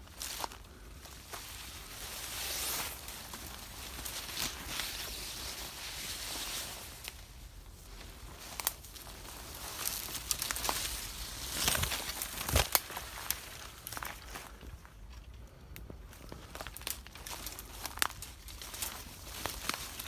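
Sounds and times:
leaves and branches rustling: 0.0s - 20.0s
twigs snapping: 7.9s - 20.0s.

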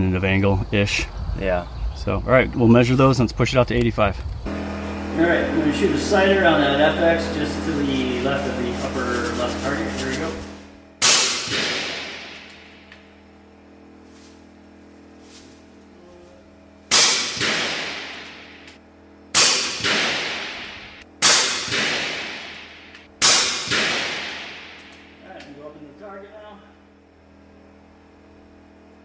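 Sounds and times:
air rifle shots echoing: 11.0s - 12.9s, 16.9s - 18.7s, 19.3s - 25.2s.

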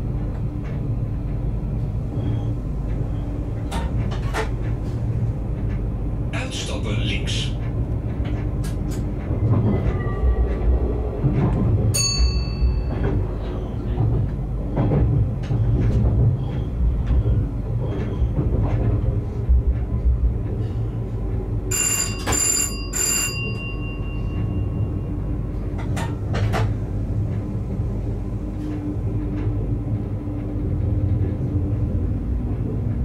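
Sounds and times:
train rumbling on track: 0.0s - 33.0s
bell signal ringing: 21.7s - 24.9s.

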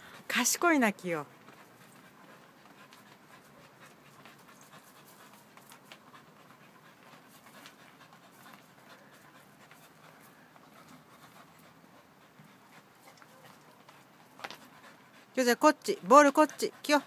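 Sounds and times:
dog panting faintly: 0.0s - 17.0s
paws scuffing and tapping: 1.3s - 15.3s.

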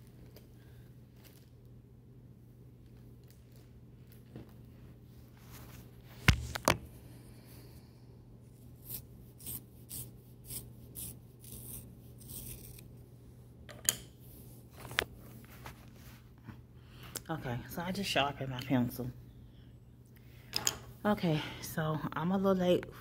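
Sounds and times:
pencil sharpener scraping: 8.8s - 12.8s.

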